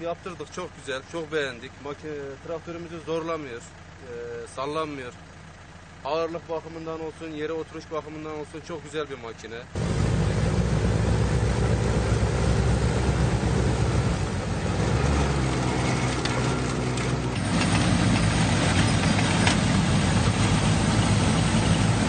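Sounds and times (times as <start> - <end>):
tractor engine running: 0.0 - 22.0
snow blower throwing snow: 9.8 - 22.0.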